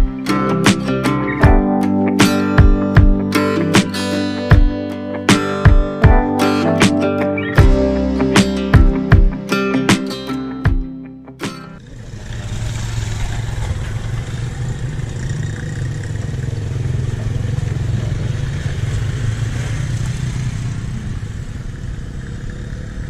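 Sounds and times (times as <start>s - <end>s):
street noise: 0.0s - 23.0s
motorcycle engine running: 11.8s - 23.0s.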